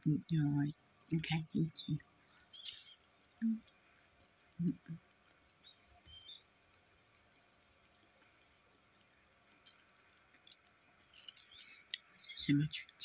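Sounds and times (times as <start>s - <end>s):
faint clicks: 1.9s - 12.2s.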